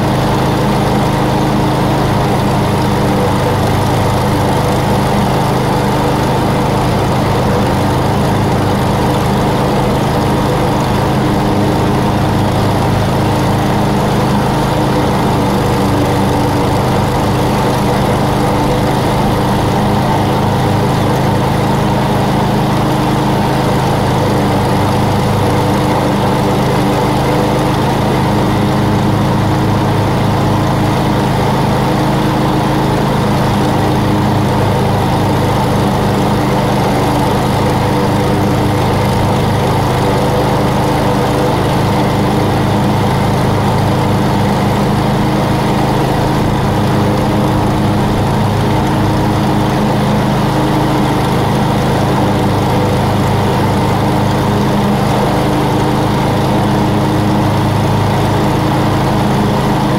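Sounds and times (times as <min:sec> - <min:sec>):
lawn mower engine running: 0:00.0 - 0:59.9.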